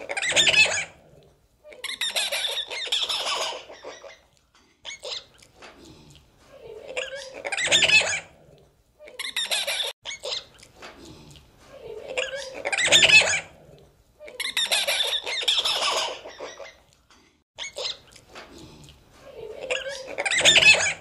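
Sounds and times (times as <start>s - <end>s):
monkeys squealing cries: 0.0s - 1.0s, 1.8s - 4.2s, 7.0s - 8.3s, 9.2s - 10.5s, 12.1s - 13.5s, 14.3s - 16.9s, 19.6s - 21.0s.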